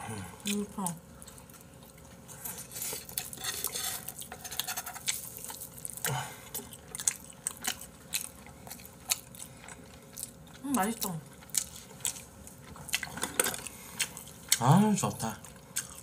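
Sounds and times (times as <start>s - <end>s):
chewing: 0.4s - 16.0s.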